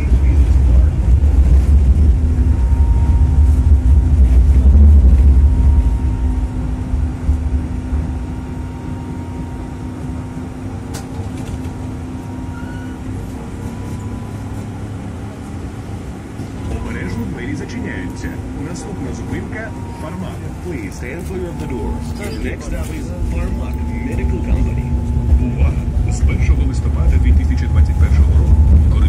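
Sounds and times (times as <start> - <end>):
tram rumbling: 0.0 - 29.0
hum with faint whine: 0.2 - 10.1.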